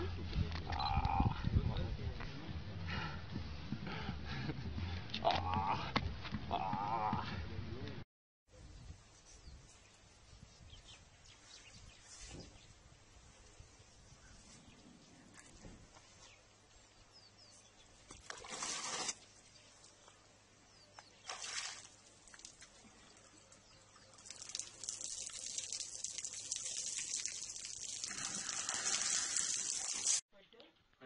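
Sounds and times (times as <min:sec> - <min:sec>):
elephant splashing water: 0:18.2 - 0:19.2, 0:21.2 - 0:30.2.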